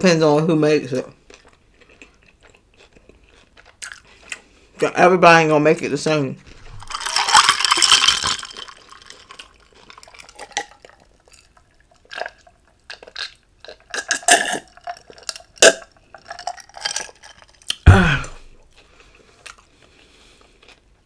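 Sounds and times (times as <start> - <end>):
person sipping and gulping: 6.5 - 20.6.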